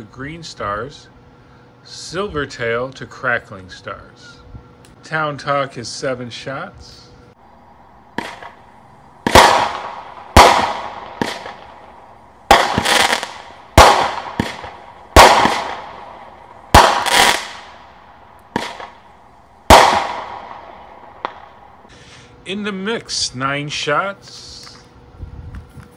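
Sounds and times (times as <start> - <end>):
firework bangs: 8.1 - 21.9
faint firework pops: 9.2 - 11.7.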